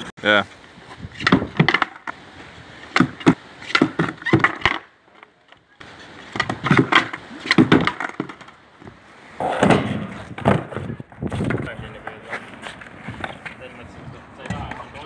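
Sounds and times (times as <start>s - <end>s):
skateboard clattering on concrete: 1.2s - 2.2s, 2.8s - 13.6s.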